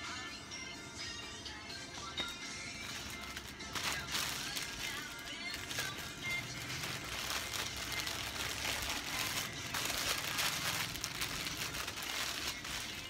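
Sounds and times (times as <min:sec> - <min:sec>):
packaging rustling and crinkling: 0:02.8 - 0:13.0.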